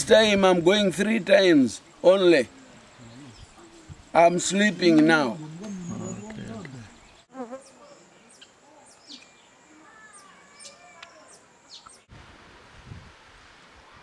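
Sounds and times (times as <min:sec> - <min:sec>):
quiet outdoor hiss: 0:00.0 - 0:14.0
weaver birds calling: 0:01.8 - 0:12.1.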